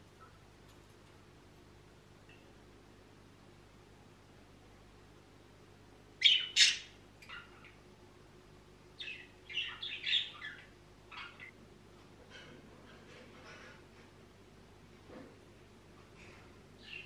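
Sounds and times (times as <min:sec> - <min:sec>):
parrot squawking and chirping: 0:06.2 - 0:07.7.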